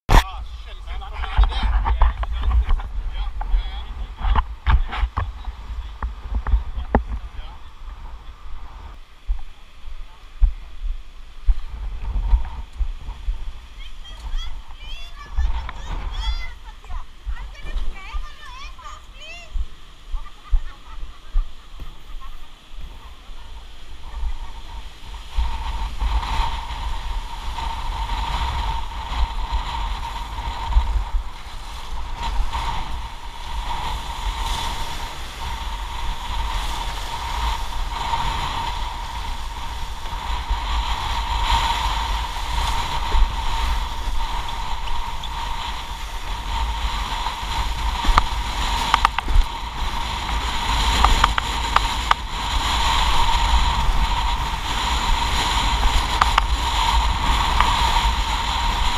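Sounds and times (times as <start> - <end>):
water rushing under board: 0.1 - 58.9
wind buffeting microphone: 0.1 - 58.9.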